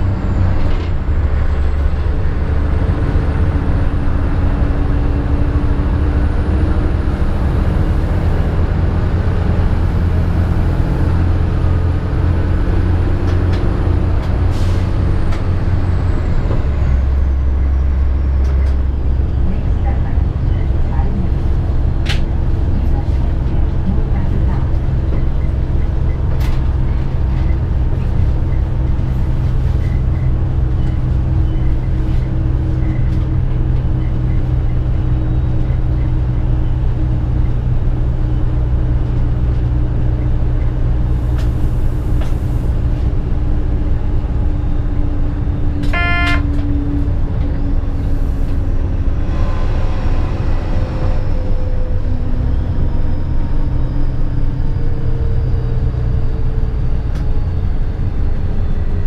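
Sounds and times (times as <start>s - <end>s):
railcar engine drone: 0.0s - 59.0s
short beep: 45.9s - 46.6s.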